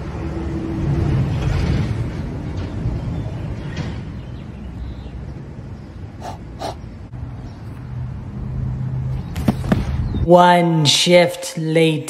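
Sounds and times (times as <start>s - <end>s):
passing traffic rumble: 0.0s - 10.2s
puffs of breath into a hand: 6.2s - 6.8s.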